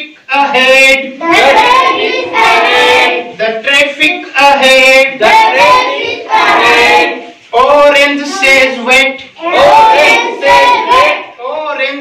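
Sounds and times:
children singing in unison: 0.8 - 3.4, 4.5 - 7.4, 9.4 - 11.4.

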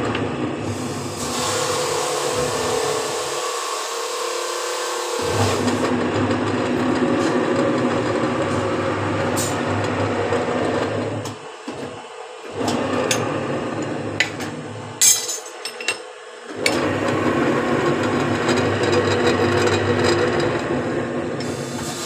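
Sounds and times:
machine motor humming: 0.0 - 15.0, 16.2 - 22.0
sharp metal clank: 15.0 - 16.0.

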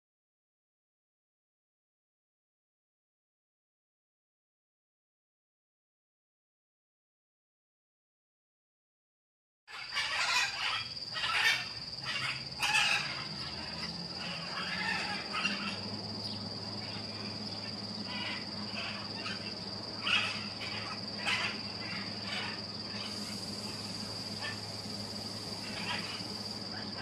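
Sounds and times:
macaws squawking: 9.7 - 27.0
steady high-pitched whine: 9.7 - 27.0.

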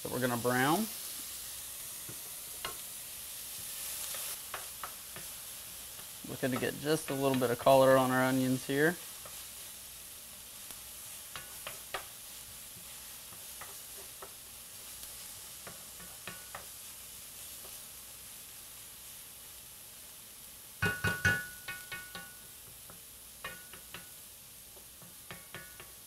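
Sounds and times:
onions sizzling in a pan: 0.0 - 26.0
knocks on pan: 20.8 - 22.3.

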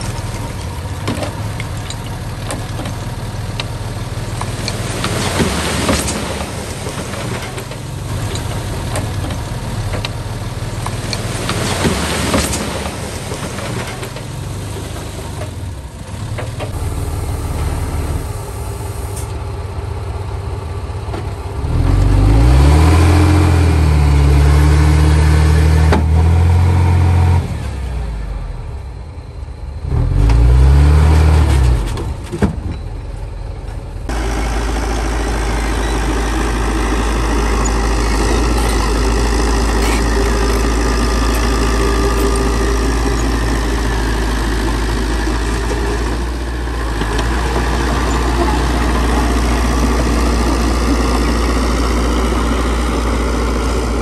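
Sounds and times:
bulldozer diesel engine revving: 13.3 - 19.6, 21.4 - 28.8, 29.7 - 32.2, 34.1 - 54.0.

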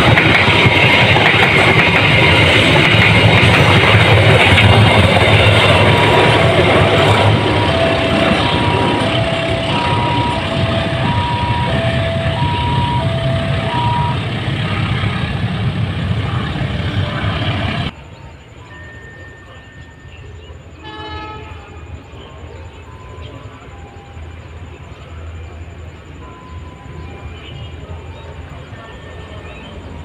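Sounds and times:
train cars rolling on rails: 0.0 - 30.0
level crossing alarm beeps: 5.7 - 14.8, 18.5 - 20.8, 22.3 - 30.0.

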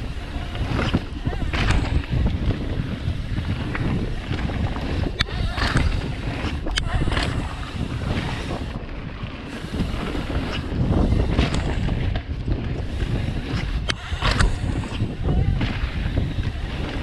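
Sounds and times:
bike clacking: 0.0 - 17.0
bike tyres rolling on dirt: 0.0 - 17.0
wind buffeting microphone: 0.0 - 17.0.

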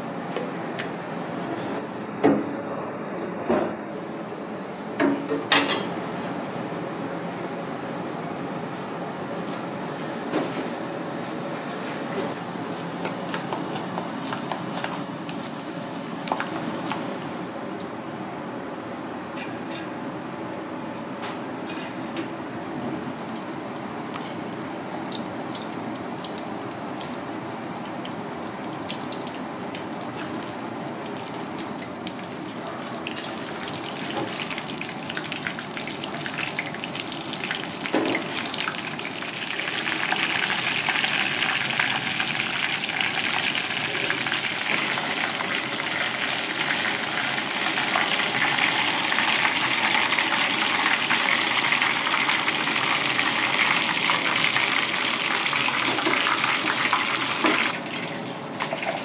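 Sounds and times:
battered fish deep-frying in oil: 23.2 - 59.0.

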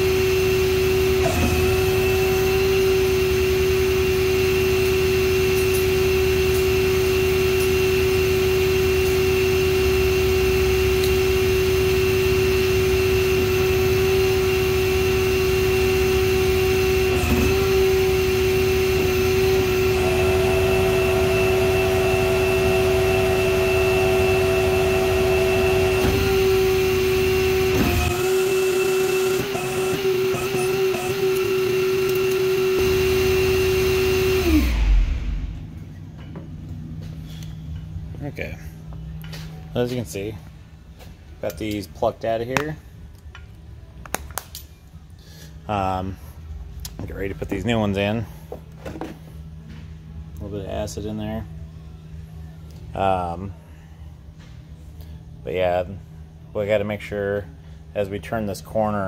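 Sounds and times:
machine whine: 0.0 - 40.4
low rumble: 34.7 - 36.0.

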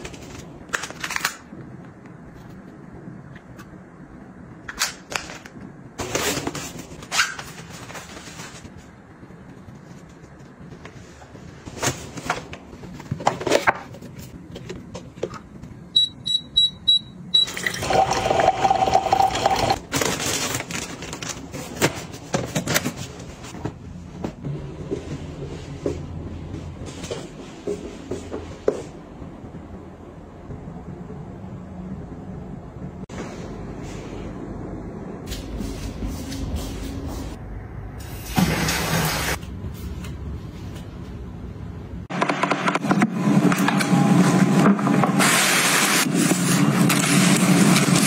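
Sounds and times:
high electronic beeps: 16.0 - 17.6.

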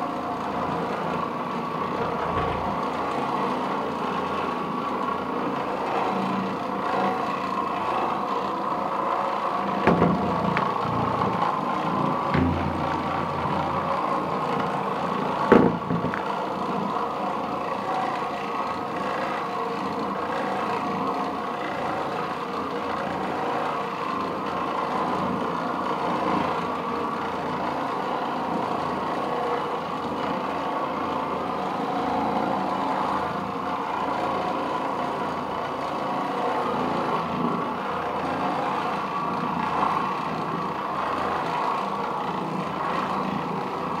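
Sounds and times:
floor machine motor hum: 0.0 - 22.7
sharp knock: 9.8 - 10.4, 15.5 - 16.2.

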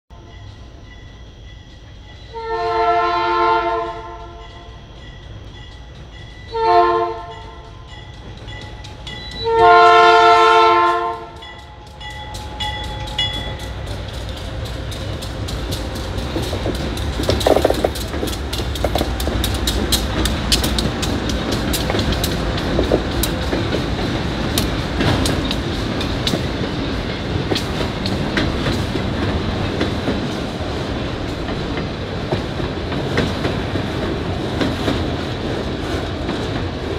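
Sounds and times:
locomotive horn blasts: 2.3 - 4.4, 6.5 - 7.6, 9.4 - 11.6
wheels clicking over rail joints: 10.8 - 36.9
locomotive engine: 11.2 - 36.9.

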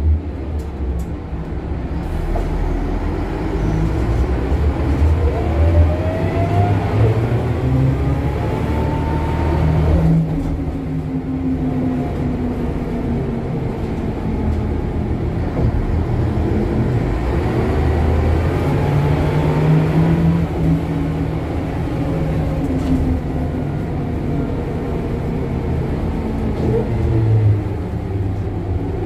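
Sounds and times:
bus engine and transmission whine: 0.0 - 29.0.

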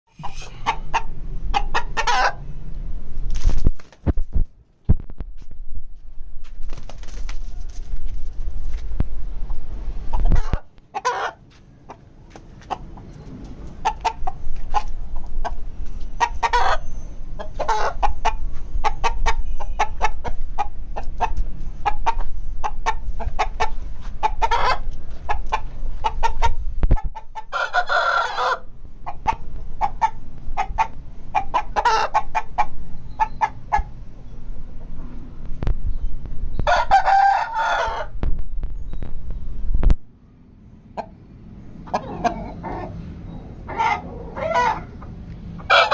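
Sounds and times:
rooster clucking: 0.1 - 2.5, 10.0 - 34.9, 36.6 - 38.2, 40.9 - 45.9
steady low rumble: 0.1 - 6.7, 7.6 - 10.9, 11.7 - 27.5, 28.6 - 36.7, 38.0 - 43.7.

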